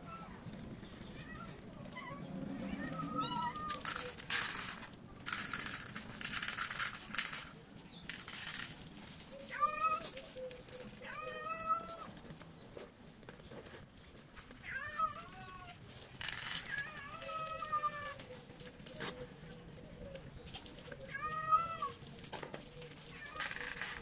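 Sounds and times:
cats meowing: 0.0 - 6.1, 9.2 - 12.4, 14.4 - 19.6, 20.2 - 24.0
rustling crinkling noise: 0.0 - 24.0.

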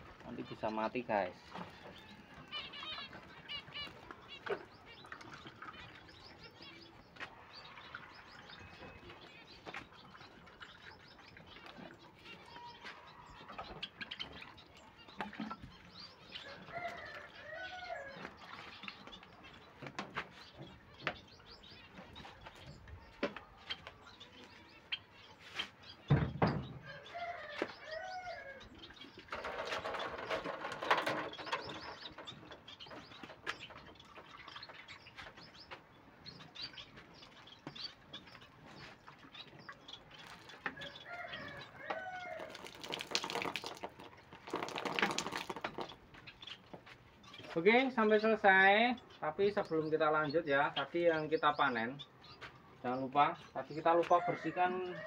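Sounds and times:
water pattering on wire cages: 0.0 - 51.9
finches chirping: 20.4 - 42.5
thump: 26.1 - 26.8.

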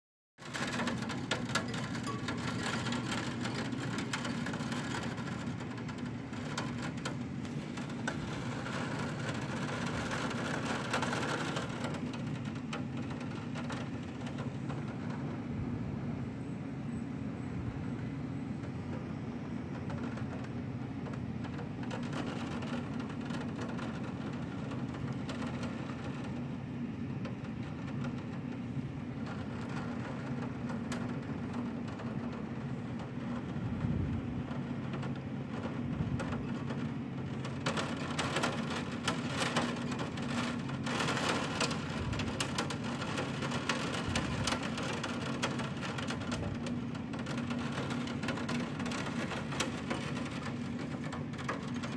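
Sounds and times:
rain pattering on window glass: 0.4 - 51.9.

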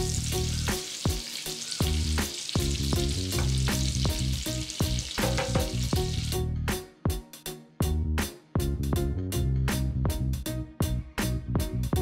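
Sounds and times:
butter and oil sizzling: 0.0 - 6.5.

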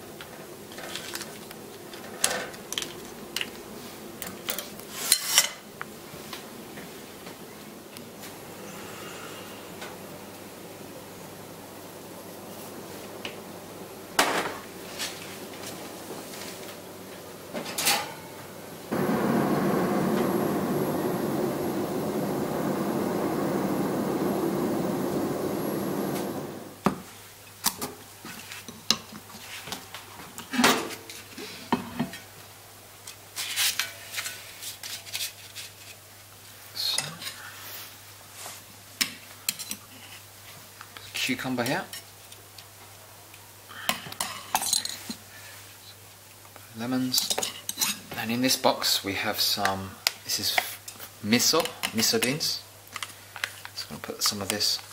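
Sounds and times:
crab hissing under grill: 0.8 - 6.2, 8.1 - 17.8, 18.5 - 26.8.

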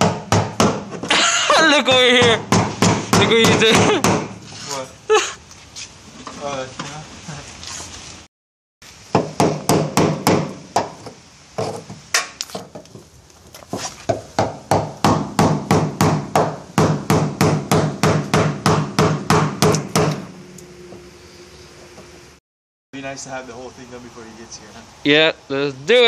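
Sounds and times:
hammer striking chisel: 14.4 - 20.3.

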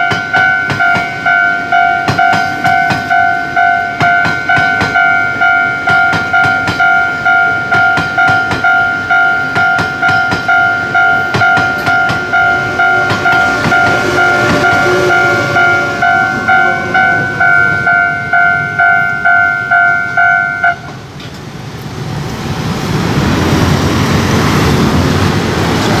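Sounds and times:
level crossing bell ringing: 0.0 - 20.9
train wheels clattering: 0.0 - 21.5
scooters on wet road: 21.2 - 26.0.

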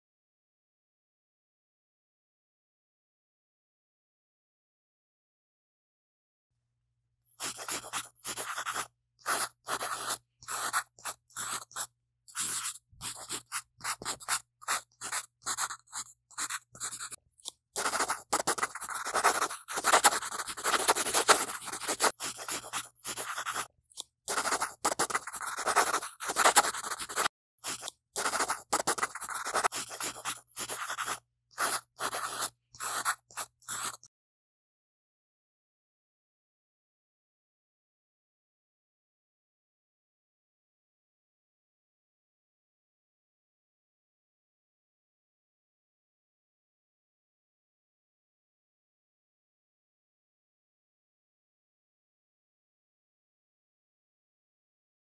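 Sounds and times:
pencil scratching on paper: 7.3 - 34.1.

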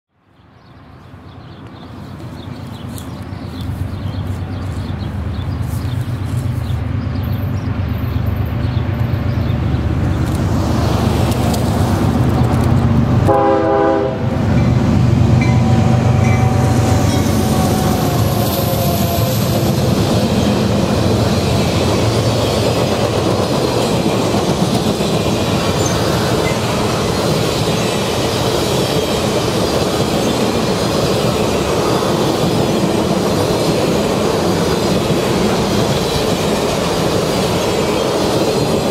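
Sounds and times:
diesel locomotive engine: 0.4 - 38.9
train horn blast: 13.2 - 14.4, 15.4 - 19.6
train wheels clacking on rails: 14.4 - 38.9.

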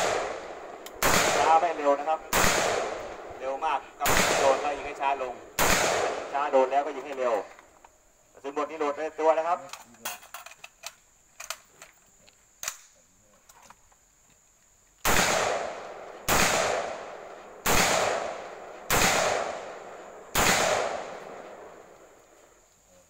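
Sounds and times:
rifle shots with echo: 0.0 - 7.3, 15.0 - 22.2.

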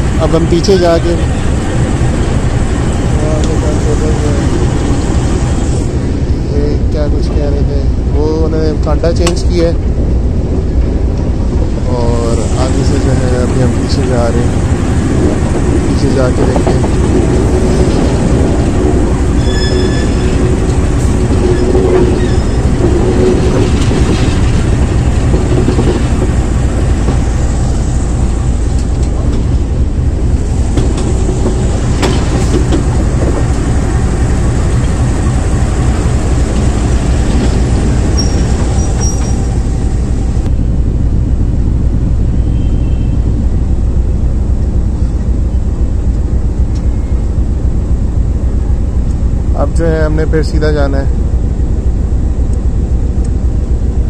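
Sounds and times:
locomotive engine and wheels rumbling: 0.0 - 54.0
high wheel squeals: 19.3 - 20.6, 21.4 - 22.8, 38.0 - 39.9.

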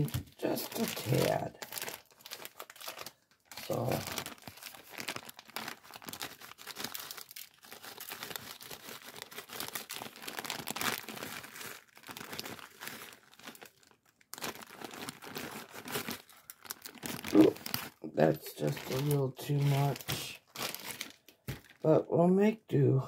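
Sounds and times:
plastic bag crinkling: 0.0 - 21.9.

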